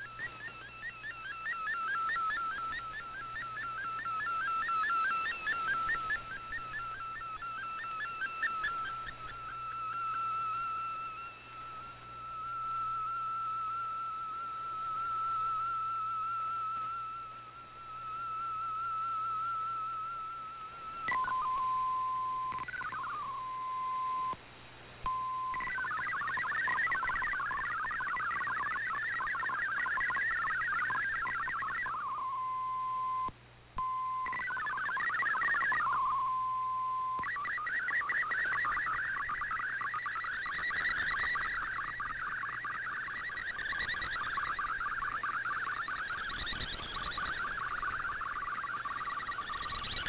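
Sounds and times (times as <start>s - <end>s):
digital data signal tones: 0.0s - 24.4s, 25.1s - 50.0s.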